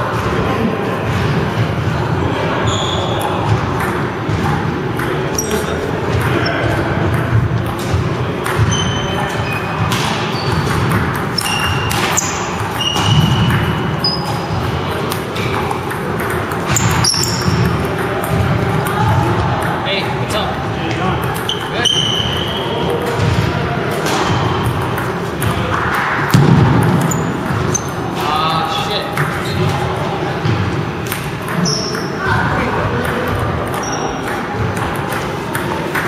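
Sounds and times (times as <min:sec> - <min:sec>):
sneakers squeaking on wooden floor: 0:02.5 - 0:04.6, 0:05.3 - 0:19.6, 0:20.9 - 0:23.4, 0:26.3 - 0:28.3, 0:31.5 - 0:32.4, 0:33.7 - 0:34.7.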